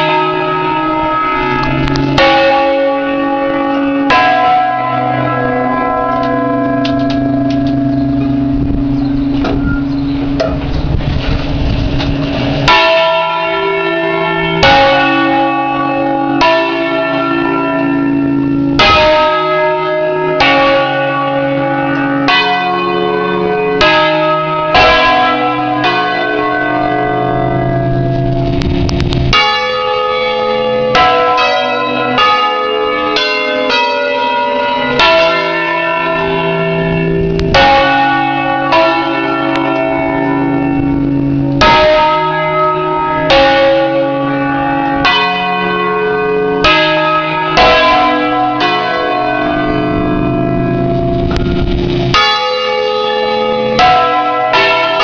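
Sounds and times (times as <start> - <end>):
church bells pealing: 0.0 - 55.0.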